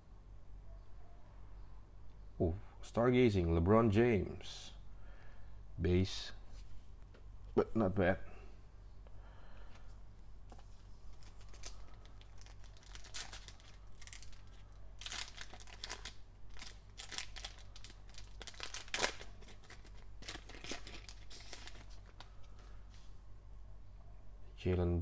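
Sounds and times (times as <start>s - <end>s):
foil wrapper crinkling and tearing: 11.1s - 22.6s.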